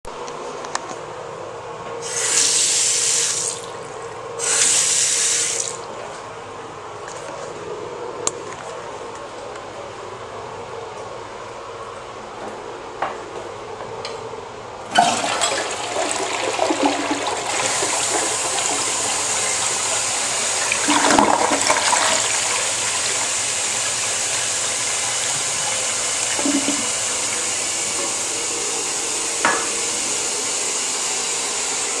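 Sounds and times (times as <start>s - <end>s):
toilet flushing: 2.0s - 6.2s, 14.9s - 32.0s.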